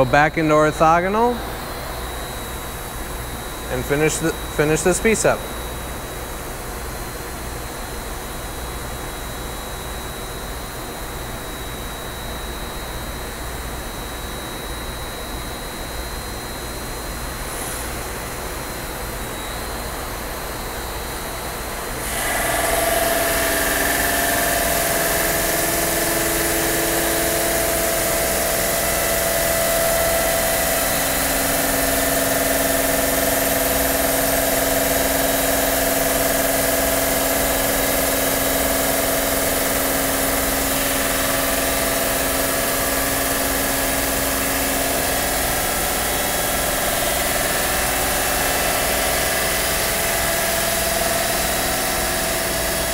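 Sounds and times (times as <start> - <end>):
diamond saw blade cutting stone: 22.0 - 28.3.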